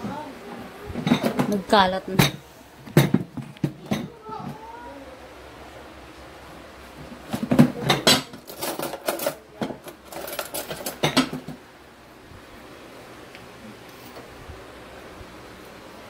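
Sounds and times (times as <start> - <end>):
dishes and utensils clattering: 1.0 - 4.2, 7.2 - 11.6.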